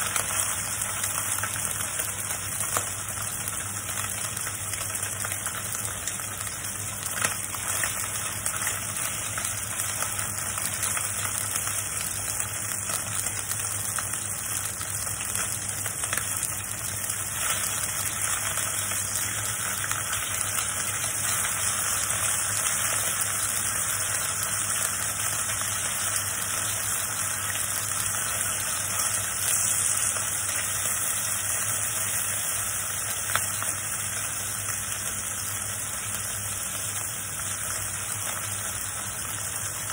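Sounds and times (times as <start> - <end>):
meat sizzling in hot oil: 0.0 - 39.9.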